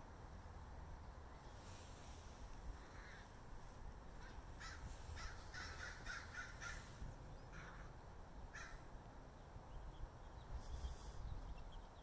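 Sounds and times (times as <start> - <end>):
crows cawing: 2.8 - 3.4, 4.2 - 8.9.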